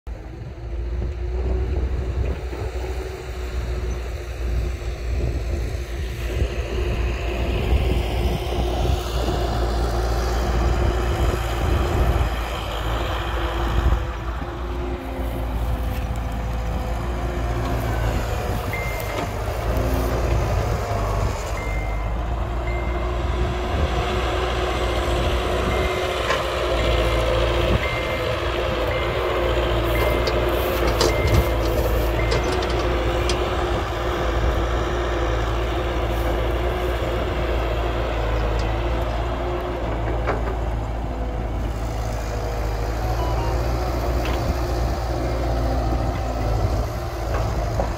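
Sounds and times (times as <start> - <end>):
heavy diesel machinery rumbling: 0.1 - 47.9
reversing alarm beeping: 17.8 - 19.8, 21.5 - 23.5, 25.5 - 33.2, 43.1 - 43.8.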